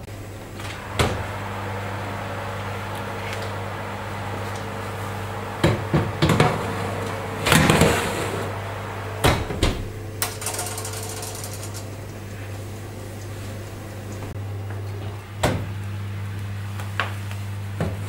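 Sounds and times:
oven door shutting: 0.4 - 11.9
baking tray knocking on rack: 5.6 - 6.7.

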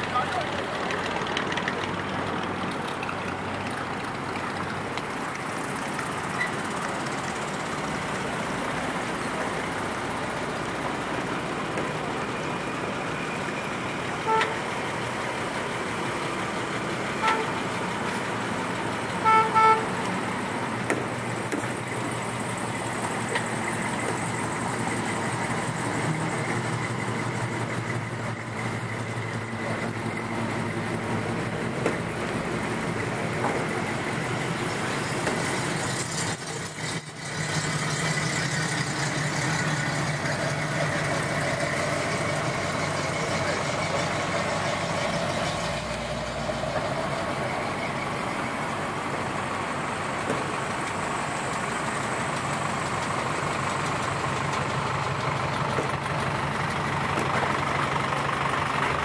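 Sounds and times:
cars and trucks driving past: 0.0 - 59.0
car horn toots: 14.2 - 14.7, 17.1 - 17.6, 19.2 - 20.0.

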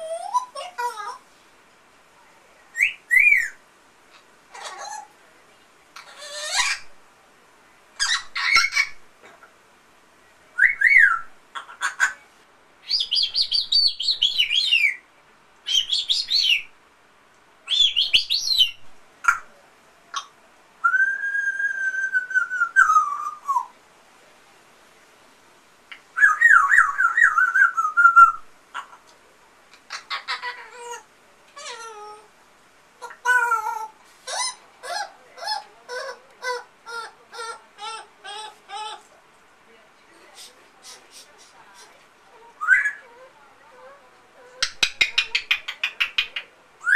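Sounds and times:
parrot whistling: 10.6 - 11.3, 42.6 - 43.0.

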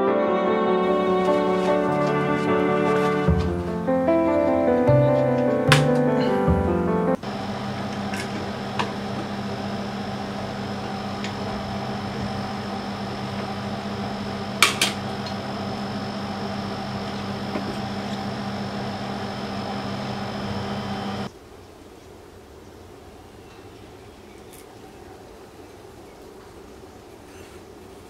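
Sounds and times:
furnace fan hum: 0.8 - 21.3
thin high whine: 7.2 - 21.3.

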